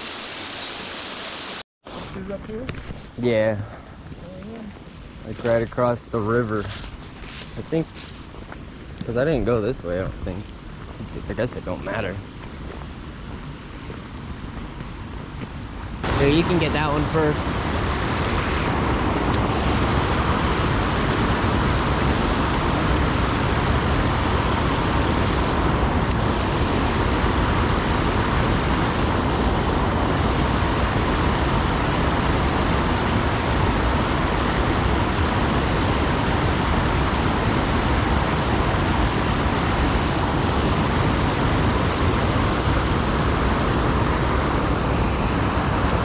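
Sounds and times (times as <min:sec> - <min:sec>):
creek water rushing: 0:15.9 - 0:46.0.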